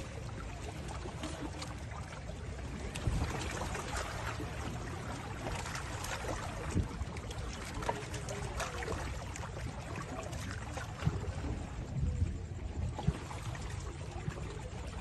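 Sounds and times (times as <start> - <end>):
low steady rumble: 0.0 - 15.0
small waves lapping: 0.0 - 15.0.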